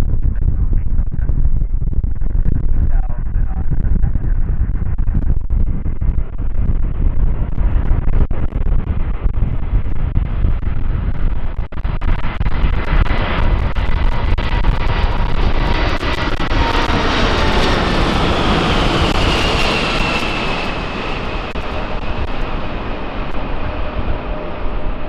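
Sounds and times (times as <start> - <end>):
jet engines roaring at takeoff: 11.8 - 25.0.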